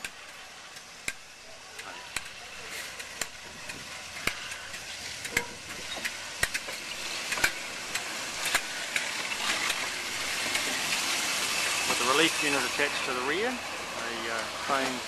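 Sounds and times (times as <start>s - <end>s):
train rolling past: 0.0s - 15.0s
wheels clicking on rails: 0.0s - 15.0s.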